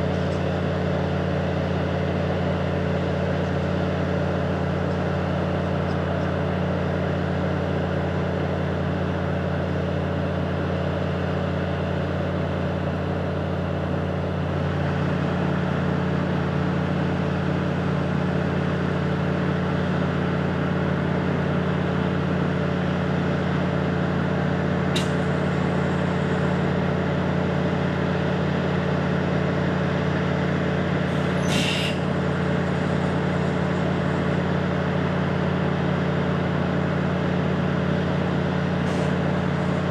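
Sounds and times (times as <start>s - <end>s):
diesel train engine idling: 0.0s - 39.9s
brief high hiss: 31.4s - 32.0s.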